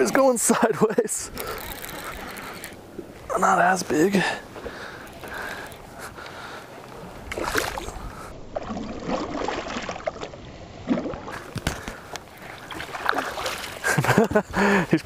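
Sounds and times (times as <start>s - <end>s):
fish thrashing and splashing: 7.3s - 14.2s.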